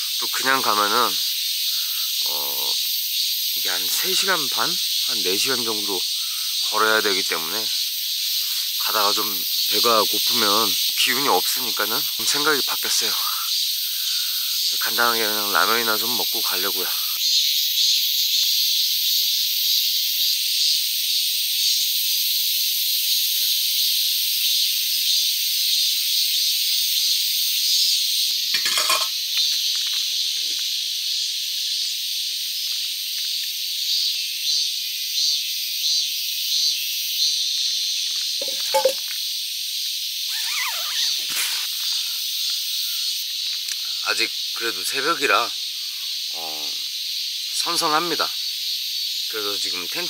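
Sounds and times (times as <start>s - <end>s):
insects chorus: 0.0s - 50.0s
handling rustles and knocks: 38.4s - 39.0s.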